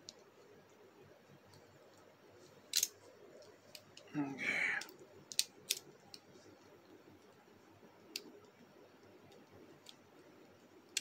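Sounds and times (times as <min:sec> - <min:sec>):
plastic toy parts clicking: 0:02.7 - 0:04.1, 0:04.8 - 0:06.3, 0:08.1 - 0:08.5.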